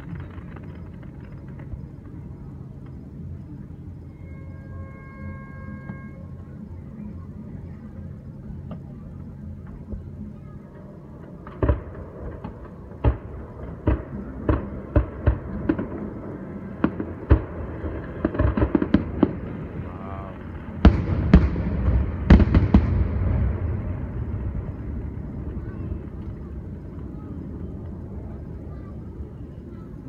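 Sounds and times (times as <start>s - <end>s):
small firework pops: 0.0s - 2.2s, 11.4s - 16.2s, 16.8s - 19.6s
fireworks booms with rumble: 11.3s - 29.4s
fireworks bangs: 11.4s - 29.0s.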